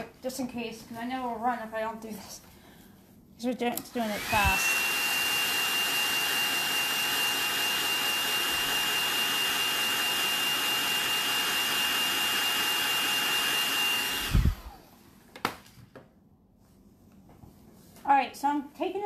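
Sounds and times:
hair dryer running with high whine: 0:03.9 - 0:15.0.

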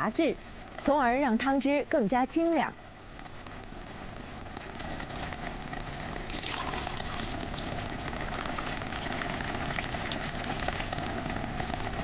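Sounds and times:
broth bubbling in a pot: 0:02.9 - 0:12.0.

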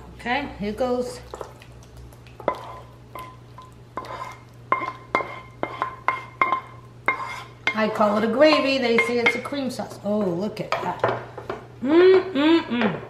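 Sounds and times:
spatula scraping skillet: 0:02.4 - 0:09.6.

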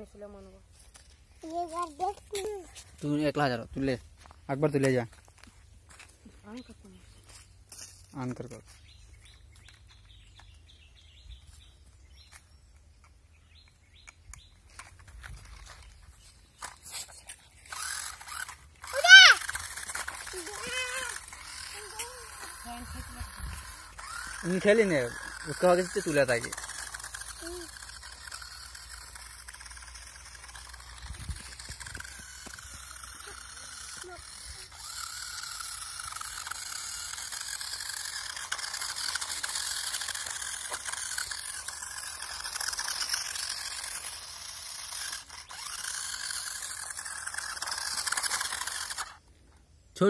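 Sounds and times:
toy truck electric motor whirring: 0:00.0 - 0:11.3, 0:13.0 - 0:49.7
bird chirping: 0:08.7 - 0:14.8.

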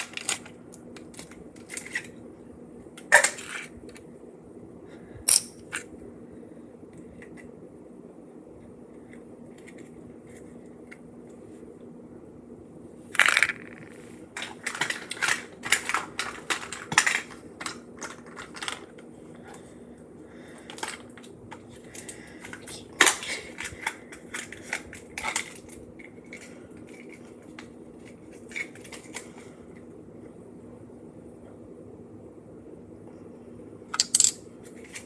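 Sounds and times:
steady low hum: 0:00.0 - 0:35.0
plastic wrappers crinkling: 0:13.4 - 0:19.0.

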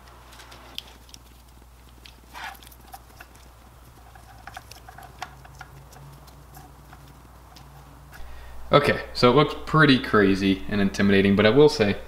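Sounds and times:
cable rustling: 0:00.0 - 0:08.3
low steady hum: 0:00.0 - 0:12.0.

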